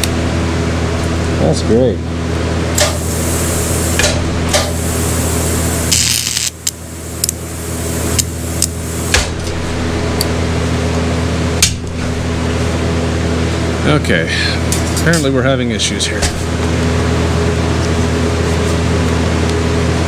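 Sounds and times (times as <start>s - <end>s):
welding arc pops and crackles: 2.7s - 5.2s, 5.8s - 7.4s, 8.0s - 9.6s
welding arc buzz: 2.7s - 10.9s.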